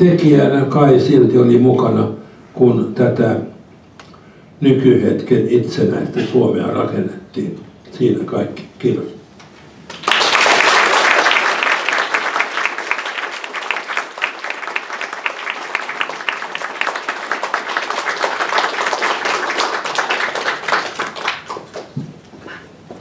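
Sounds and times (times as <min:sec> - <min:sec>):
audience applauding: 0:09.9 - 0:22.0.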